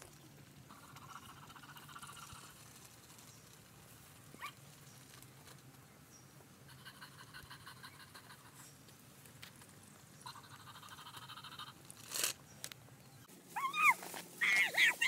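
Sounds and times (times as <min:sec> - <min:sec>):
toy motor whirring and clicking: 0:12.0 - 0:12.4.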